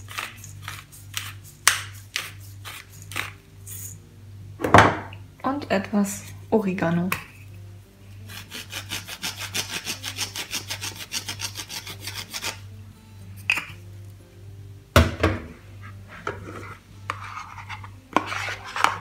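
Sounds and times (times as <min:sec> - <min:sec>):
herb grinder rasping: 0:08.1 - 0:12.7.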